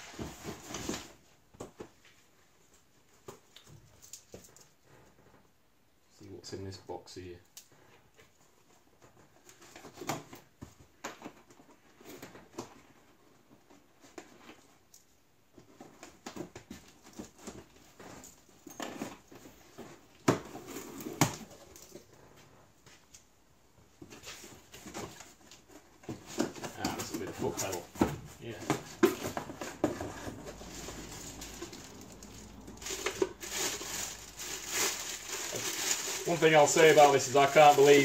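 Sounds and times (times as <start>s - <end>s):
cardboard rustling: 0.0s - 2.1s, 23.8s - 38.0s.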